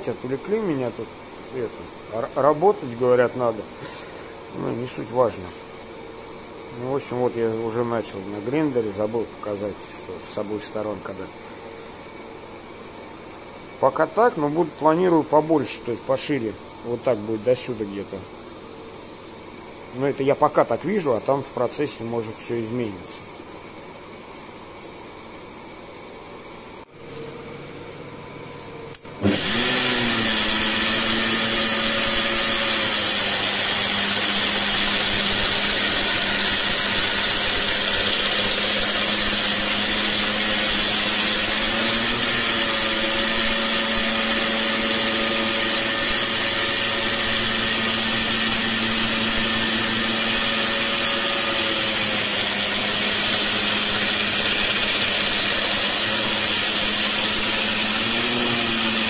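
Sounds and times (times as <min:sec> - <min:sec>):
belt grinder grinding steel: 0:29.2 - 0:59.0.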